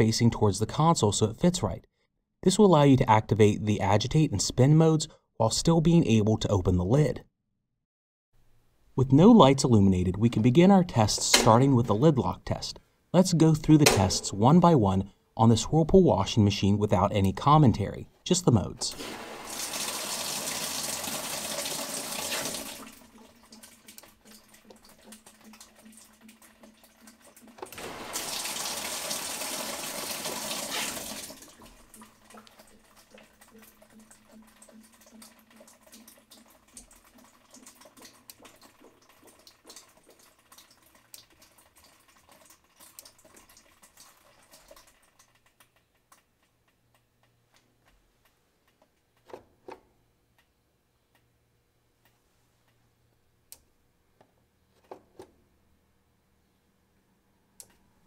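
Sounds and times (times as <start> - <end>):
water rushing into washer tub: 18.9 - 45.4
water trickling: 19.0 - 45.8.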